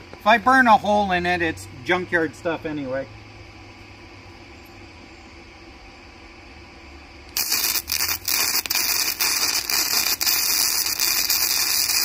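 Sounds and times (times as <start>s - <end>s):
welding arc crackling sizzle: 7.3s - 12.0s.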